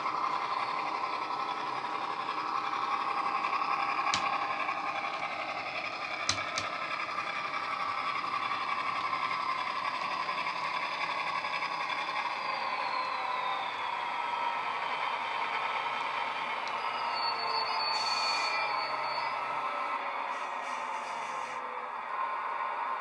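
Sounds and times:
model train engine drone: 0:00.0 - 0:23.0
sharp clicks: 0:04.1 - 0:04.4, 0:06.2 - 0:06.8.

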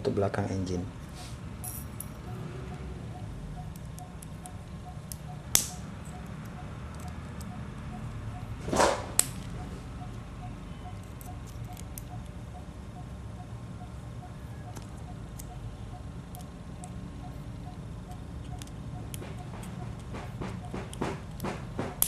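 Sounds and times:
metal tools clicking on engine: 0:01.6 - 0:02.8, 0:03.6 - 0:07.9, 0:10.8 - 0:12.4, 0:16.3 - 0:22.0.

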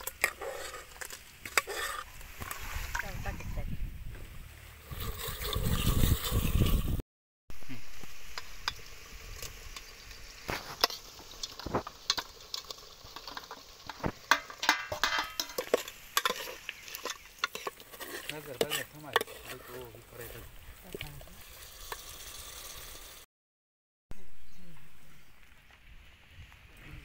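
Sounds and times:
ladle scraping a metal pot: 0:00.0 - 0:03.1, 0:04.8 - 0:07.0, 0:10.5 - 0:23.2
curry sizzling: 0:07.5 - 0:23.3.

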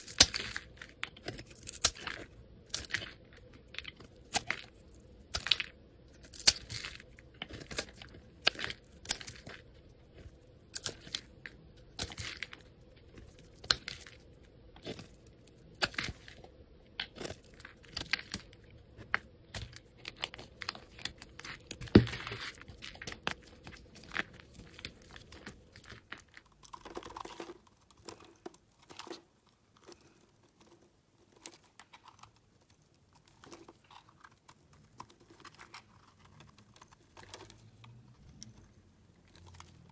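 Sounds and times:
soap cracking: 0:00.0 - 0:39.9.

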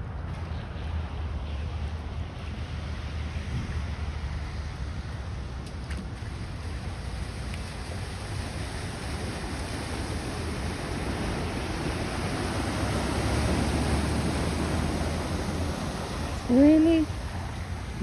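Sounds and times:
rain: 0:00.0 - 0:18.0
floodwater rushing: 0:00.8 - 0:18.0.

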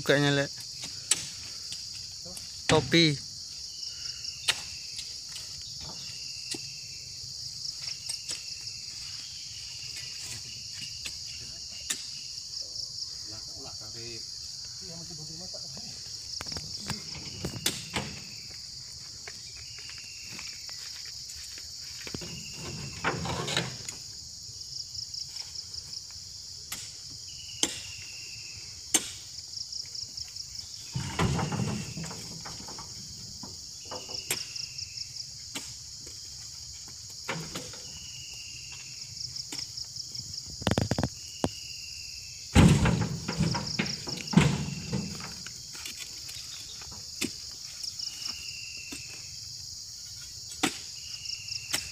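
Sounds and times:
insects buzzing: 0:00.0 - 0:51.9
heavy thuds into truck: 0:42.6 - 0:45.4.

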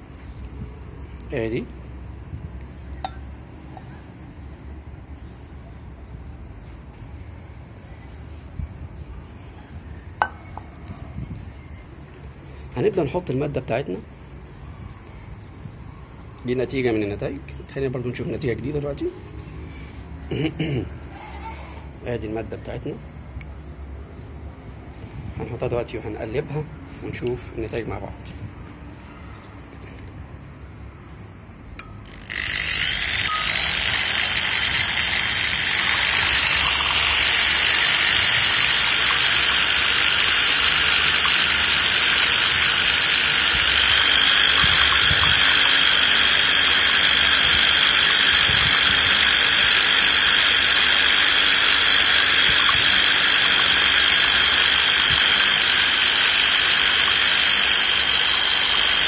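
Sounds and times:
electric stirrer motor whining: 0:32.1 - 0:59.0.

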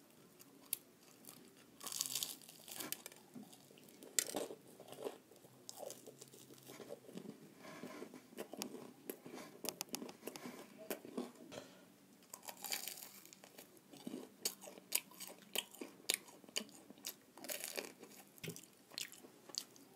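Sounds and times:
crunchy chewing: 0:00.3 - 0:11.4, 0:12.3 - 0:19.9.

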